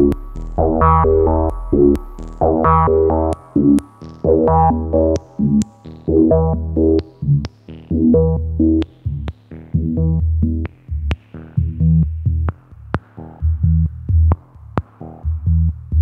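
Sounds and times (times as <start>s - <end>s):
synthesizer notes: 0.0s - 3.8s.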